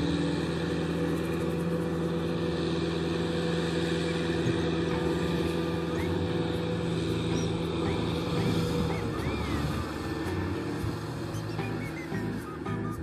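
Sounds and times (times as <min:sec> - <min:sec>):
tractor diesel engine under load: 0:00.0 - 0:13.0.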